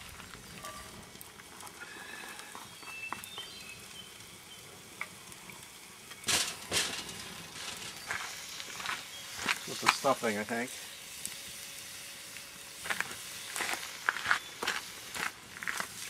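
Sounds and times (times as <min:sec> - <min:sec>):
food sizzling in skillet: 0:00.0 - 0:16.0
scraping in skillet: 0:06.3 - 0:09.6.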